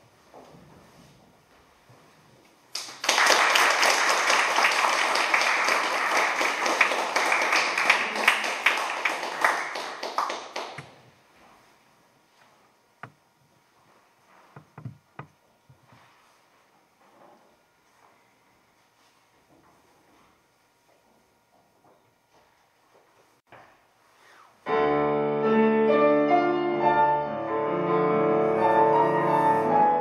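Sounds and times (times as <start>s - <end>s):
audience applauding: 2.7s - 11.0s
faint taps and knocks: 14.5s - 16.0s.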